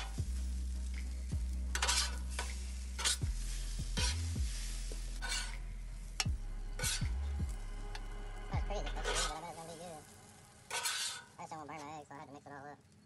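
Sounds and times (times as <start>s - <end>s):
metal spatula scraping griddle: 0.0s - 0.2s, 0.8s - 8.0s, 8.8s - 11.4s
music with deep bass beat: 0.0s - 9.4s
food sizzling: 0.0s - 13.0s.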